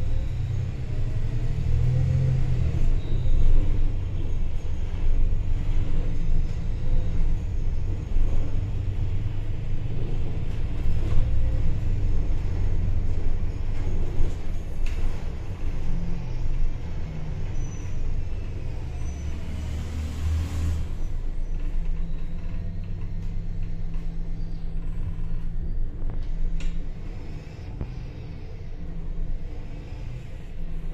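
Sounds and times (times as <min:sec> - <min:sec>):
bus engine and road rumble: 0:00.0 - 0:30.9.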